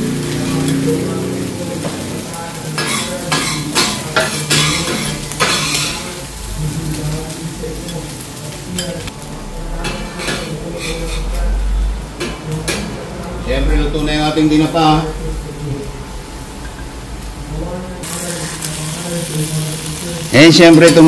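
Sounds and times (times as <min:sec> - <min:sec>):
food sizzling on griddle: 0:00.0 - 0:21.0
metal spatula scraping griddle: 0:02.6 - 0:06.3, 0:08.7 - 0:11.5.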